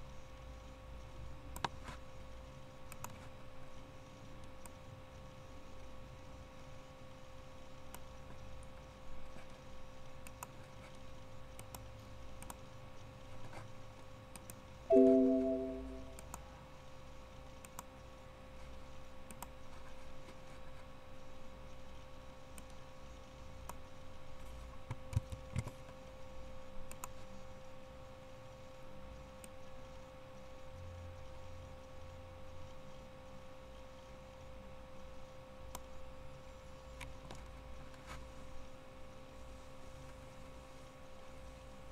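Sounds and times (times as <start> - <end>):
faint computer mouse clicks: 1.5 - 2.0, 2.9 - 3.3, 7.9 - 8.1, 10.2 - 12.7, 14.3 - 14.6, 17.6 - 17.9, 19.2 - 19.6, 24.9 - 26.0, 26.8 - 27.3, 35.7 - 35.9
short multi-tone chime: 14.9 - 16.2.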